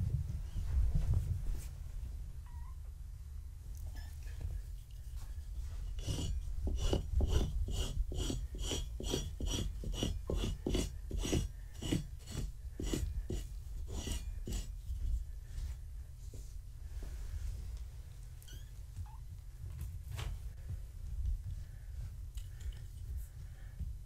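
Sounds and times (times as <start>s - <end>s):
brush scraping fabric: 4.2s - 15.8s.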